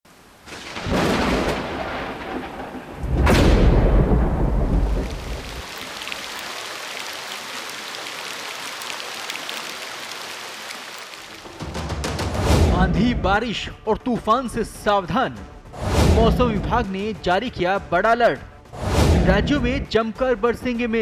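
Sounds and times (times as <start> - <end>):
heavy rain hissing: 0.1 - 12.7
thunder rumbling: 0.5 - 9.6.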